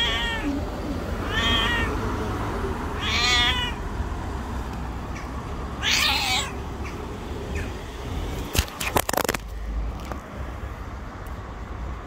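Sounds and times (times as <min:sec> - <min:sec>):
cat meowing: 0:00.0 - 0:02.0, 0:03.0 - 0:03.8, 0:05.8 - 0:06.6.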